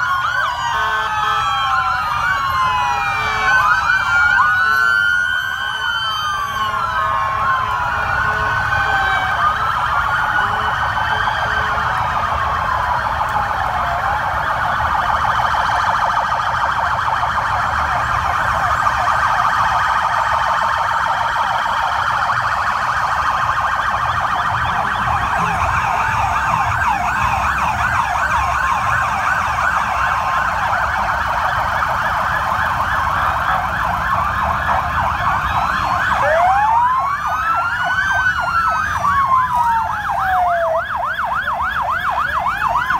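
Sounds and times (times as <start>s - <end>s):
sirens wailing and yelping: 0.0s - 42.9s.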